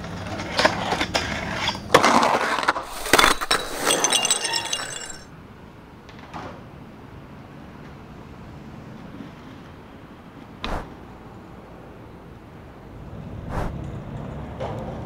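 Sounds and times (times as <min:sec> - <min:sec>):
faint outdoor background: 0:00.0 - 0:15.0
sharp clanks and crashes: 0:02.8 - 0:05.3.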